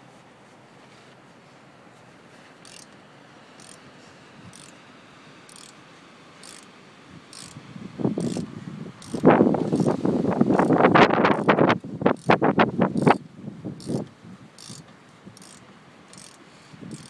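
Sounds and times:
ratchet wrench clicking: 2.6 - 2.9, 3.6 - 3.8, 4.5 - 4.8, 5.5 - 5.8, 6.4 - 6.7, 7.3 - 7.6, 8.2 - 13.2, 13.8 - 14.8, 15.4 - 17.0.

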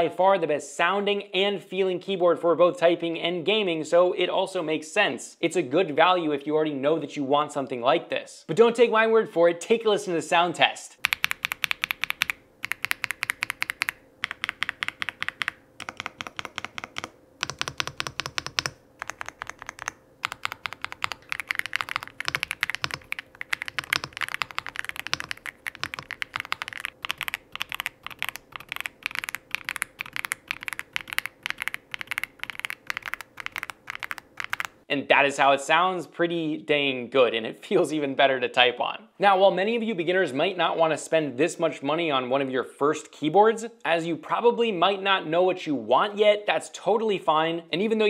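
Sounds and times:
mechanical keyboard typing: 11.0 - 34.8.

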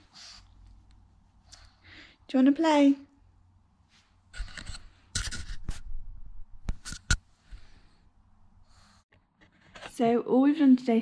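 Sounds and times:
close scratching and rubbing: 3.9 - 6.0, 6.7 - 7.3.

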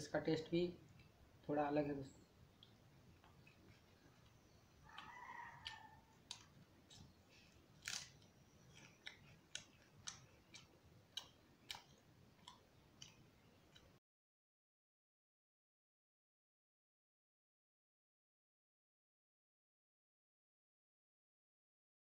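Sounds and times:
mouth clicks and chewing smacks: 2.5 - 14.0.

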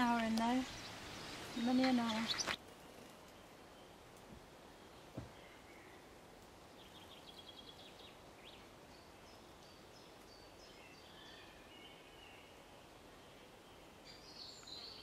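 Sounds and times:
faint steady hiss: 0.0 - 15.0
songbirds singing: 0.0 - 15.0.

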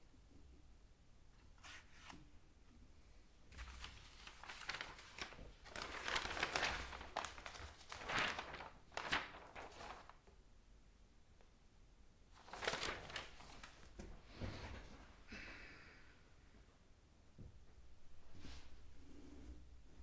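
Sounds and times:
paper rustling and crinkling: 3.5 - 10.3, 12.4 - 14.8.

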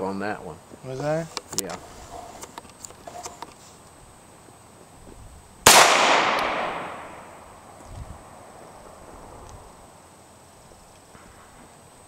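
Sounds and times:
pistol shot with echo: 5.6 - 7.4.

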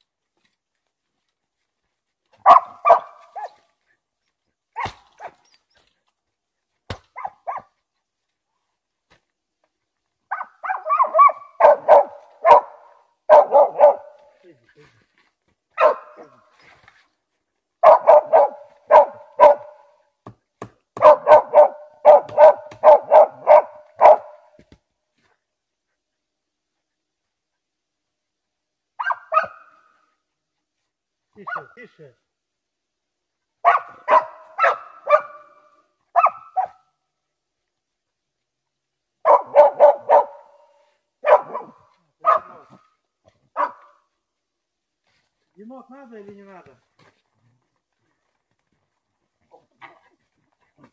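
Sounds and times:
dog barking: 2.4 - 3.6, 7.1 - 7.8, 10.3 - 14.4, 15.8 - 16.4, 17.8 - 20.0, 21.0 - 24.6, 29.0 - 29.8, 31.4 - 31.8, 33.6 - 36.9, 39.2 - 42.9, 43.5 - 44.0.

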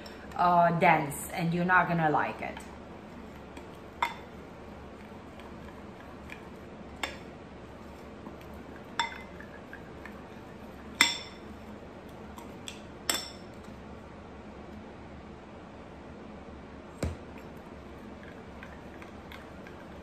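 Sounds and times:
metal spoon stirring batter: 3.1 - 11.7
spoon clinking against glass bowl: 9.0 - 9.8, 11.0 - 11.4, 13.1 - 13.4.

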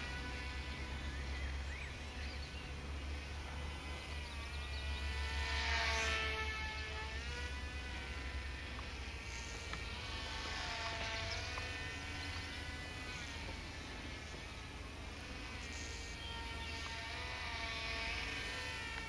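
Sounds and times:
model plane motors buzzing whine: 0.0 - 19.0.

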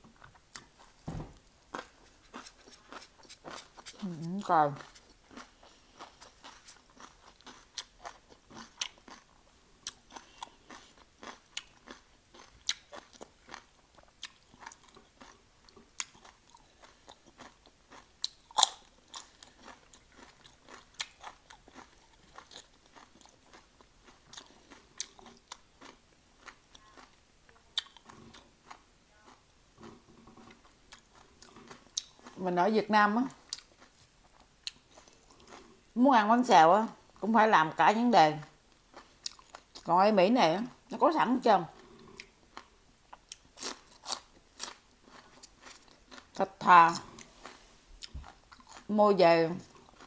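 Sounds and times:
crunching raw vegetables: 0.2 - 32.4, 41.7 - 48.9.

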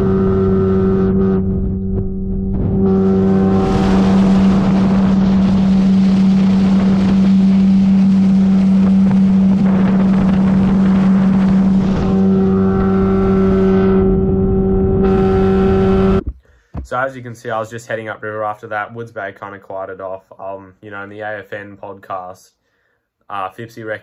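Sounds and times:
boat motor humming: 0.0 - 16.4
wind rushing: 1.1 - 15.3.

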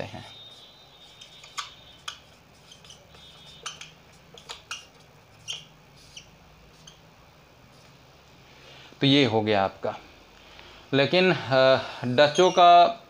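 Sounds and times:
marker squeaking on whiteboard: 0.0 - 8.0, 12.1 - 13.0.

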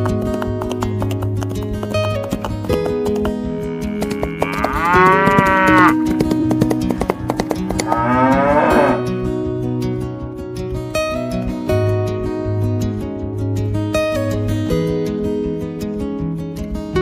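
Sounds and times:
acoustic guitar music: 0.0 - 17.0
cow mooing: 3.5 - 6.0, 7.8 - 9.1.

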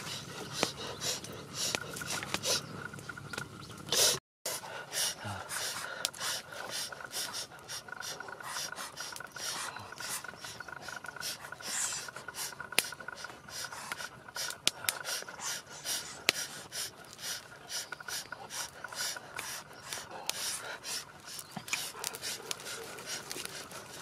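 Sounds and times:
sharp clicks: 12.0 - 15.3.

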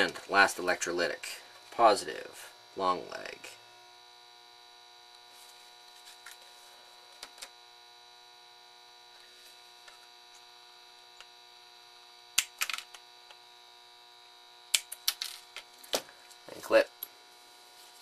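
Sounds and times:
faint electrical hum: 0.0 - 18.0.

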